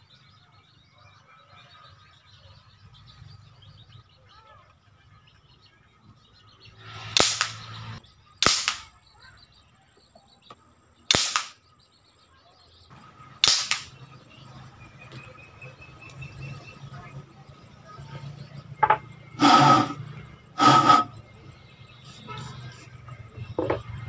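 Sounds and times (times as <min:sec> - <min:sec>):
sharp gunshots with ring: 0:07.2 - 0:07.7, 0:08.4 - 0:08.9, 0:11.1 - 0:11.6, 0:13.4 - 0:13.9.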